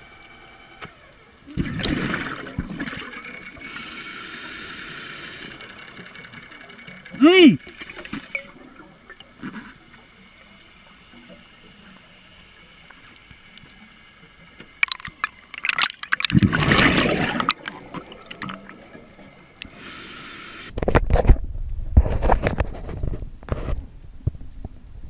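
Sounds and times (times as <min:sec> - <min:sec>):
underwater bubbles gurgling: 0:00.7 - 0:20.3
underwater clicks: 0:14.5 - 0:18.8.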